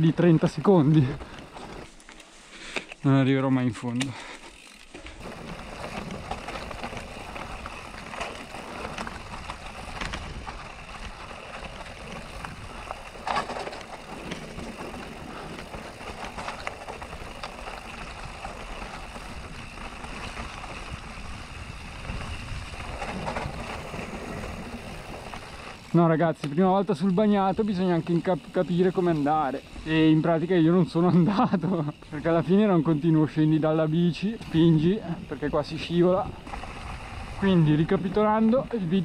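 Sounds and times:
bike rolling over stones: 0.0s - 39.0s
wheels knocking on stones: 4.8s - 30.4s.

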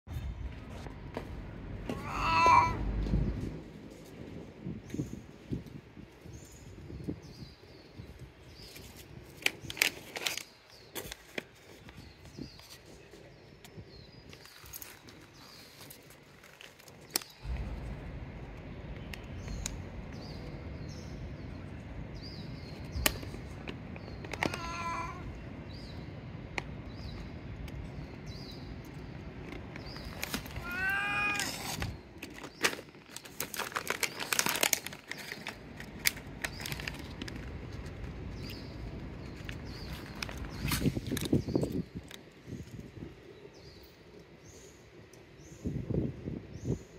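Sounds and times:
cat meowing: 1.9s - 2.9s, 24.4s - 25.3s, 30.6s - 31.8s.

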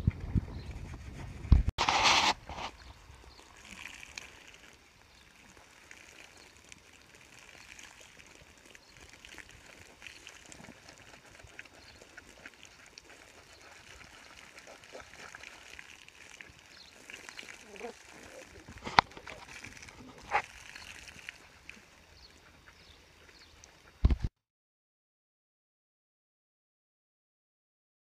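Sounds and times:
water from hose trickling: 1.8s - 24.1s
small drips and splashes: 2.6s - 24.0s.

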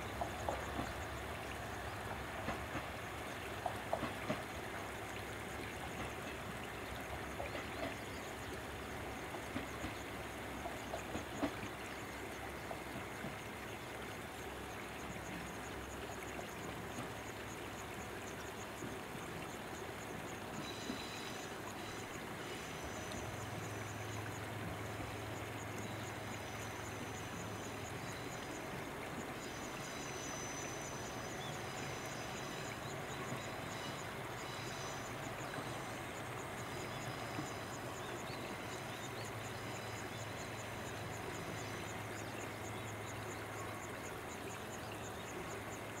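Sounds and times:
rushing water: 0.0s - 46.0s
diesel railcar engine drone: 19.3s - 44.0s.

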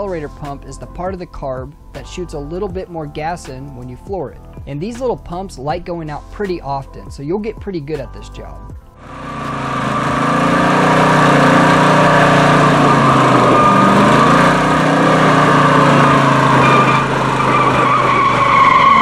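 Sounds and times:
car engine revving high: 9.0s - 19.0s
tyres squealing on asphalt: 9.0s - 19.0s.

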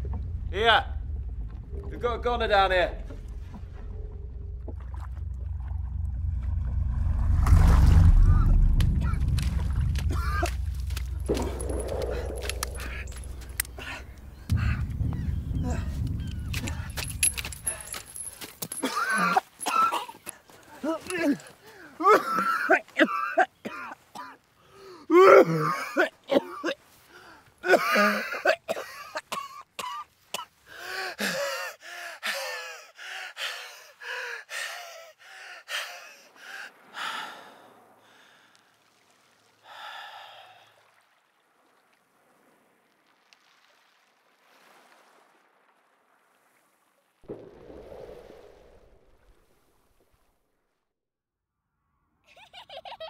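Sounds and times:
soft low rush: 0.0s - 18.3s, 47.3s - 50.1s
man gasping for breath: 30.7s - 38.4s.

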